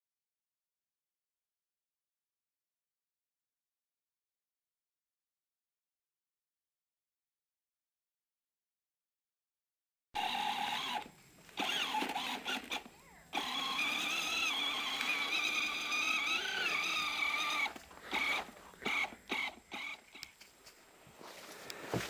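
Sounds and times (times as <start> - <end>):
electric toy motor whining: 10.2 - 20.3.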